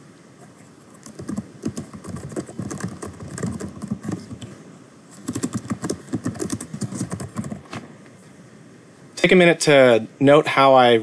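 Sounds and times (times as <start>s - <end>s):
keyboard typing: 1.0s - 4.5s, 5.2s - 7.7s.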